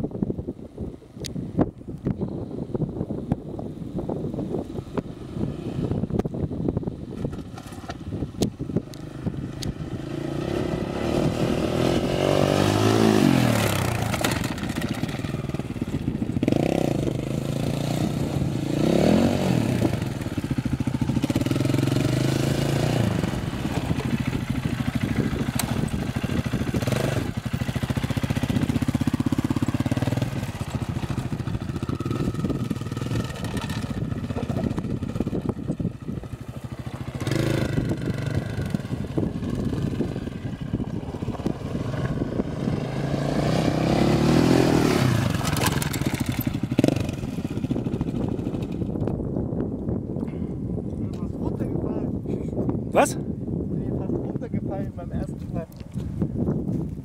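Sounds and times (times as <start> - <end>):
quad engine revving: 8.6 - 48.9.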